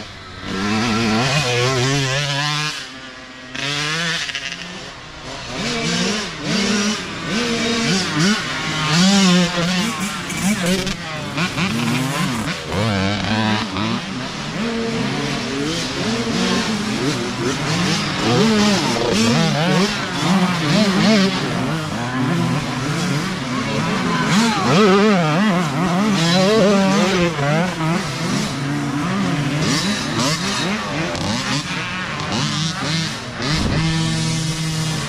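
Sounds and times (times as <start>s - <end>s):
dirt bikes revving: 0.0s - 35.0s.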